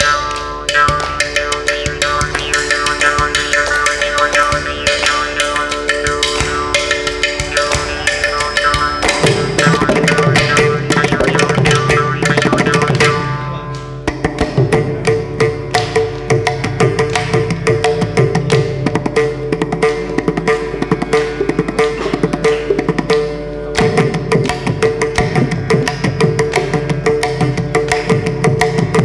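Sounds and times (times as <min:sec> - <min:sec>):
hand drum fast strokes: 0:00.8 - 0:13.2, 0:14.1 - 0:29.0
deeper drumming: 0:00.8 - 0:13.4.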